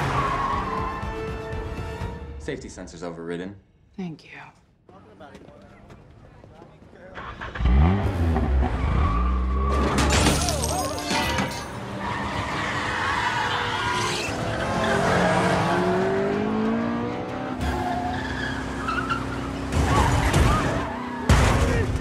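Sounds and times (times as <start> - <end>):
background music: 0.0 - 3.6
tyres skidding: 5.3 - 22.0
car engines revving: 7.1 - 10.1, 11.5 - 22.0.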